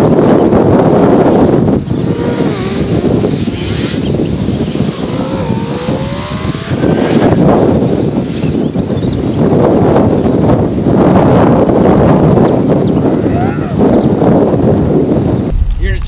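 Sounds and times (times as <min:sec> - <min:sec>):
wind rumble on microphone: 0:00.0 - 0:16.0
engine accelerating: 0:04.8 - 0:07.5.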